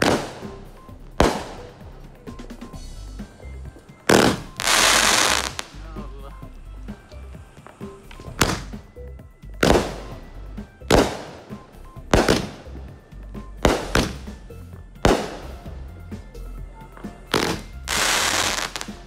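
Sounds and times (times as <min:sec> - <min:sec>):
fireworks bangs: 0:00.0 - 0:05.8, 0:06.9 - 0:08.9, 0:09.6 - 0:10.3, 0:10.9 - 0:13.0, 0:13.6 - 0:14.4, 0:15.0 - 0:15.9, 0:17.0 - 0:19.0
fireworks crackling hiss: 0:00.0 - 0:08.9, 0:17.1 - 0:19.0.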